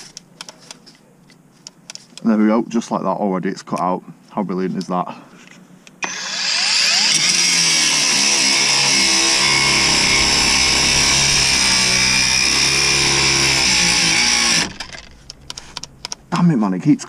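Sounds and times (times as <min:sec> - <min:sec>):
angle grinder grinding steel: 0:06.0 - 0:16.3.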